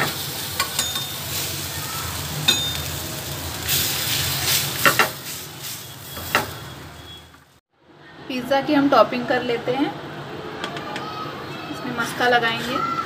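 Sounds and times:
dough sizzling in butter: 0.0s - 7.6s.

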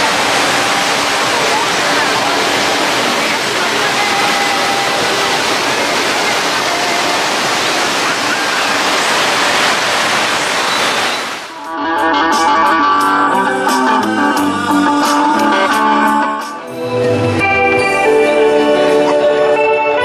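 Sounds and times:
ocean surf breaking on beach: 0.0s - 11.6s.

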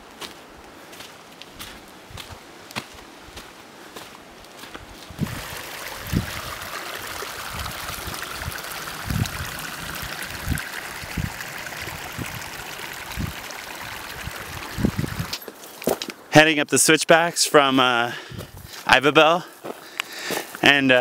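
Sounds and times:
water trickling through pools: 5.2s - 16.1s.

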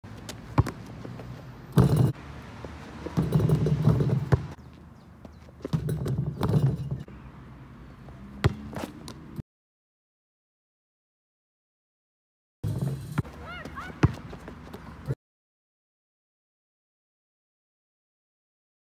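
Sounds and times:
basketball bouncing on asphalt: 0.1s - 7.1s, 8.1s - 9.3s, 12.7s - 15.1s.

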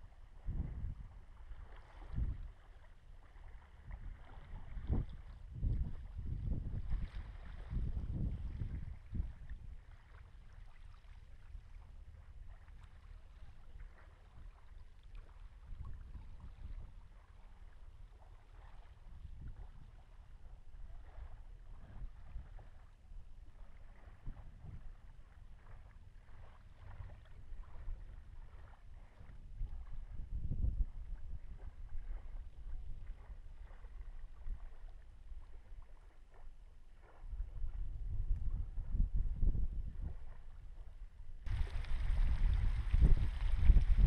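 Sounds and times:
wind rumbling on microphone: 0.0s - 44.0s.

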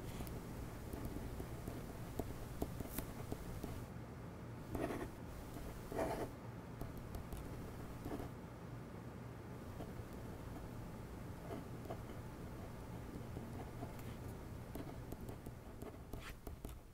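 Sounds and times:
pen scratching on paper: 0.9s - 3.8s, 4.7s - 8.3s, 13.4s - 16.8s.

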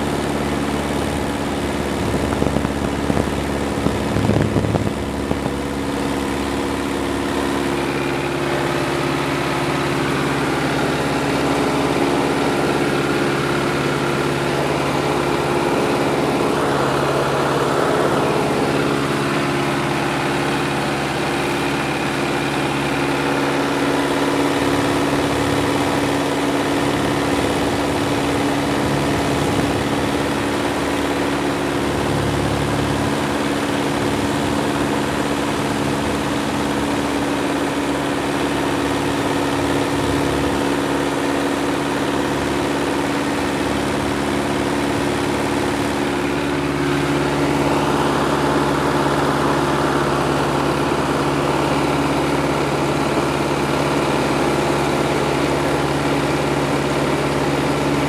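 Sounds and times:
light aircraft engine droning: 0.0s - 58.0s.

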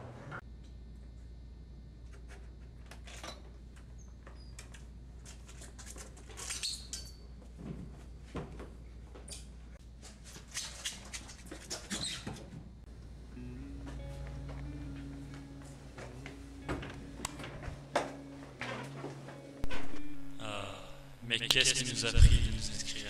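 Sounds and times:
shoes squeaking on polished floor: 6.4s - 7.2s, 10.3s - 12.6s
low steady hum: 12.8s - 23.0s.

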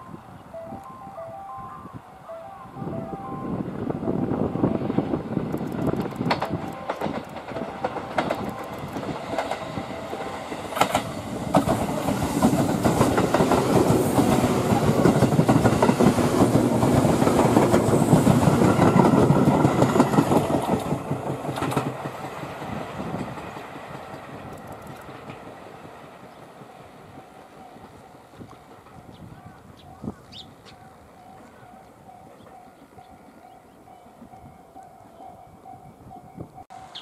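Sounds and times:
electric train rumbling past: 0.0s - 37.0s
wheels clicking over rail joints: 5.4s - 33.6s.

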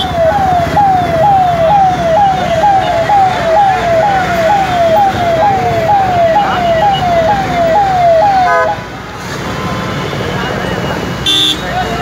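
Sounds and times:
electronic siren sweeping: 0.0s - 8.9s.

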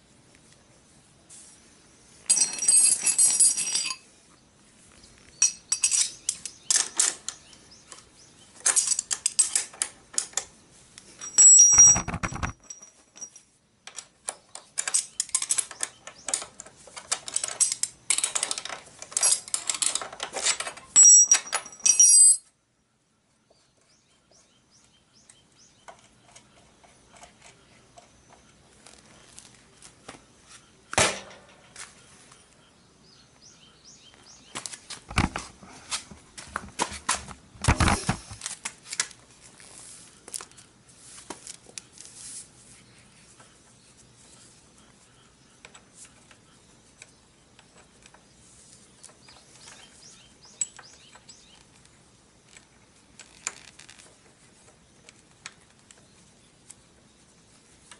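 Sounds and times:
metallic clicks of tools: 5.4s - 8.0s, 8.6s - 10.5s, 11.2s - 22.5s.

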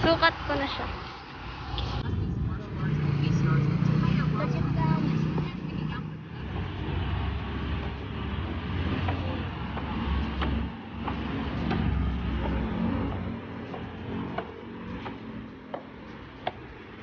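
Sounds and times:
low rumble of road vehicles: 0.0s - 17.0s
footsteps on wooden stairs: 6.4s - 16.9s.

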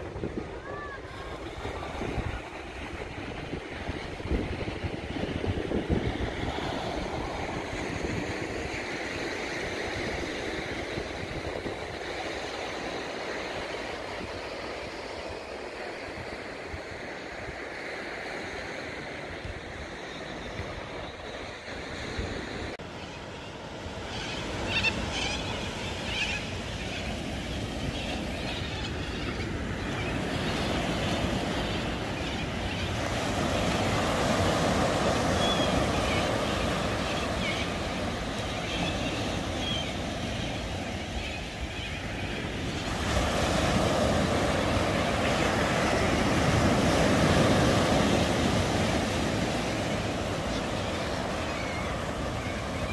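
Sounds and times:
wind rumble on microphone: 0.0s - 12.2s
small waves breaking on beach: 0.0s - 52.9s.

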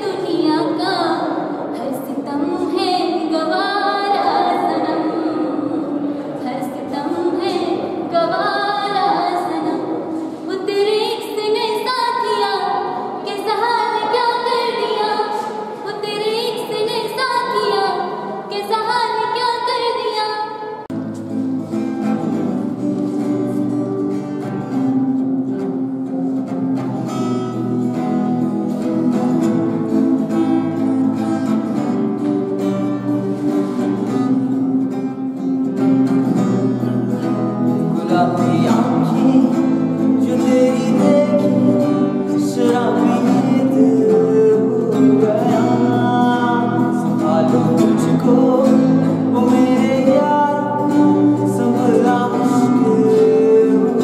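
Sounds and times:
woman singing unaccompanied: 0.0s - 20.7s, 38.0s - 54.0s
acoustic guitar strumming chords: 20.6s - 54.0s.

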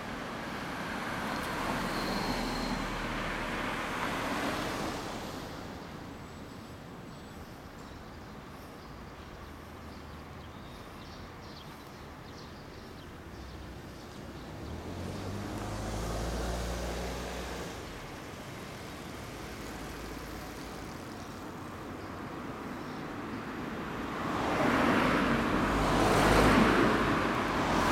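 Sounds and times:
street traffic: 0.0s - 27.9s
car passing close by: 14.5s - 20.9s, 24.0s - 27.9s.

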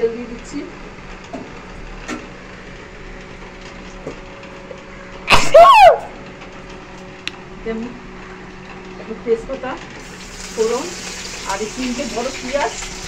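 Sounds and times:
person sneezing: 5.3s - 5.6s.

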